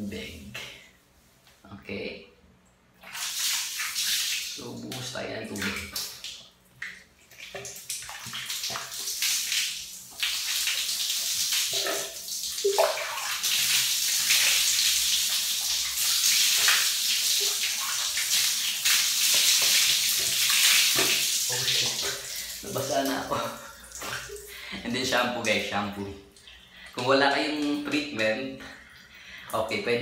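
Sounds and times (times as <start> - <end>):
water splashing over hair: 3.0 - 24.5.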